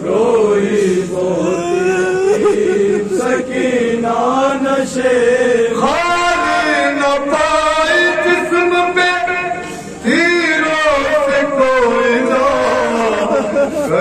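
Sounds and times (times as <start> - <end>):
men chanting a lament into microphones: 0.0 - 14.0.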